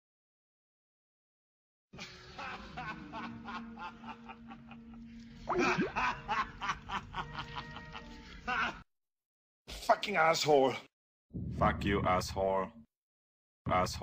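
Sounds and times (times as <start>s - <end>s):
person laughing: 2.0s - 8.8s.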